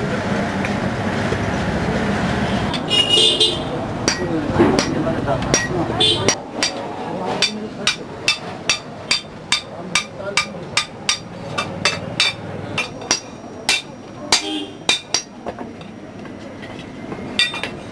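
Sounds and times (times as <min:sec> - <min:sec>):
hammer striking metal on anvil: 0:04.0 - 0:06.8, 0:07.4 - 0:15.4, 0:17.4 - 0:17.8.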